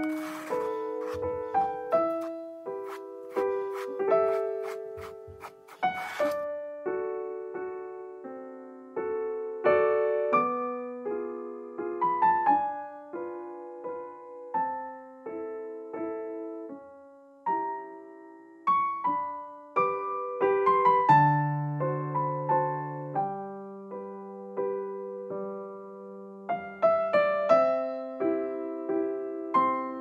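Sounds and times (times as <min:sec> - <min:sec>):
slow gentle piano melody: 0:00.0 - 0:30.0.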